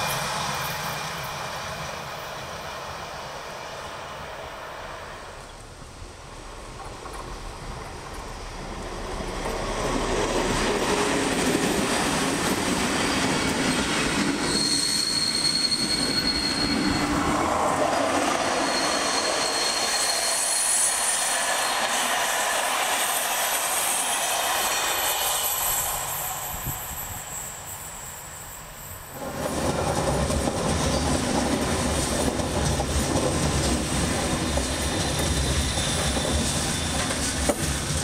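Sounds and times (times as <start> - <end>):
train wheels rumbling over track: 0.0 - 38.0
high wheel squeal: 12.8 - 29.5, 33.7 - 38.0.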